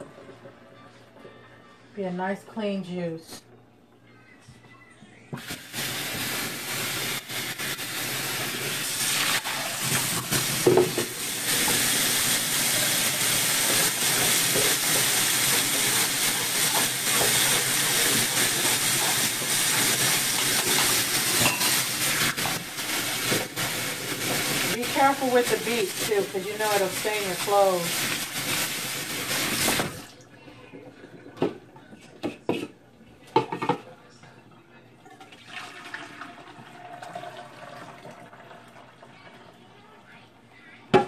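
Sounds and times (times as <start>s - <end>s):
faucet running into sink: 8.1s - 30.2s, 35.0s - 39.6s.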